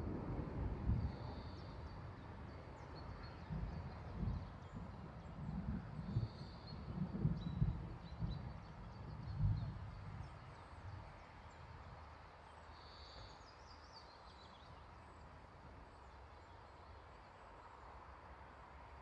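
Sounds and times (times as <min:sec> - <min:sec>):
thunder rumble: 0:00.0 - 0:10.9.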